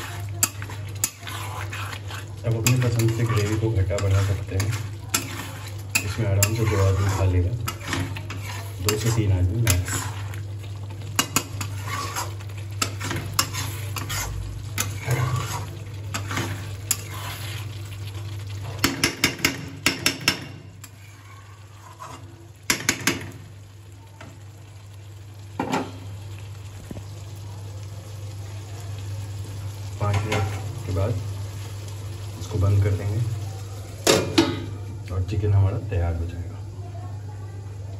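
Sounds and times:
metal spoon scraping a pan: 0:00.0 - 0:23.2
curry sizzling and simmering: 0:00.0 - 0:37.9.

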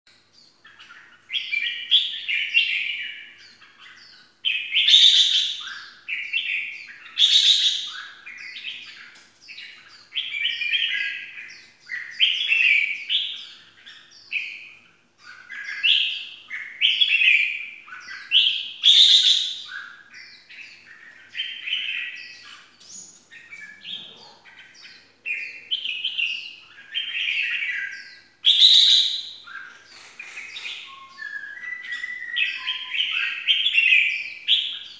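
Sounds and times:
bird singing warbled phrases: 0:00.1 - 0:34.9.

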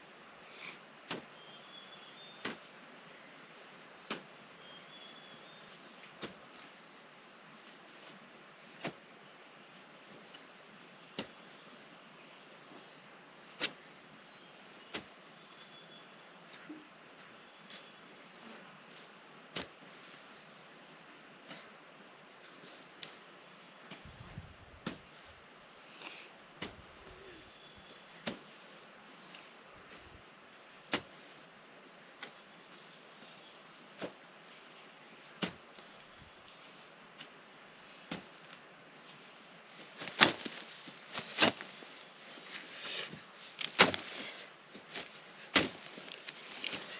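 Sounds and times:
insects droning: 0:00.0 - 0:46.9
hoe striking soil: 0:01.0 - 0:01.4, 0:02.3 - 0:02.7, 0:04.0 - 0:04.3, 0:06.1 - 0:06.5, 0:08.8 - 0:09.0, 0:11.1 - 0:11.4, 0:13.6 - 0:13.9, 0:14.9 - 0:15.2, 0:23.9 - 0:25.2, 0:26.6 - 0:27.2, 0:28.2 - 0:28.6, 0:30.9 - 0:31.2, 0:35.3 - 0:35.8, 0:38.0 - 0:38.4, 0:40.0 - 0:41.7, 0:42.8 - 0:46.9.

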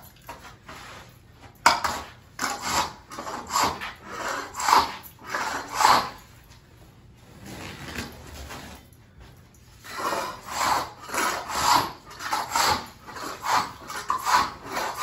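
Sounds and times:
floor scraper rasping on tiles: 0:01.6 - 0:06.3, 0:09.8 - 0:15.0.

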